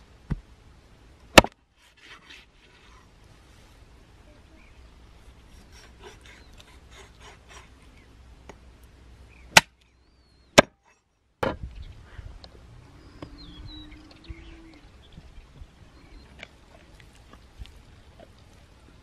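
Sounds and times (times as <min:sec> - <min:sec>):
sharp chopping blows: 0:09.5 - 0:09.8.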